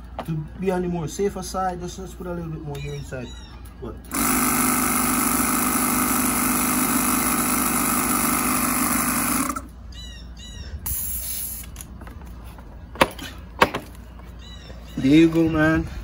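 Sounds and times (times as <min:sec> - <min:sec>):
air compressor running: 0:04.1 - 0:09.7.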